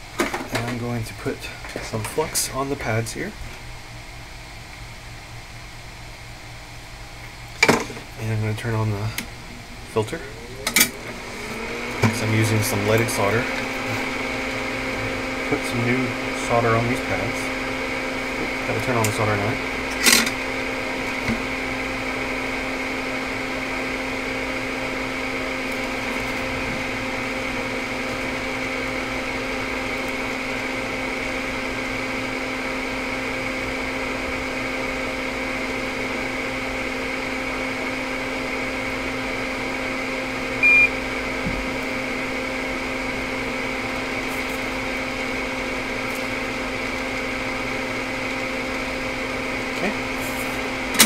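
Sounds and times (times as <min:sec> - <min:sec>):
fan humming: 0:00.0 - 0:51.0
short high beep: 0:40.6 - 0:41.0.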